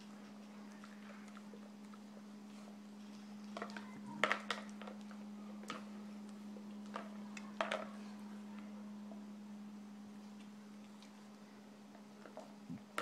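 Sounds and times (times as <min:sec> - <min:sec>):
dog eating from plastic bowl: 0:00.0 - 0:08.2, 0:11.9 - 0:13.0
steady low hum: 0:00.0 - 0:13.0.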